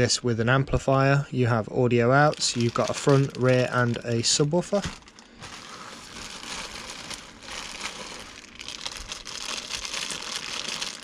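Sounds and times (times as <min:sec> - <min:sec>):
plastic bags crinkling: 0:02.1 - 0:11.0.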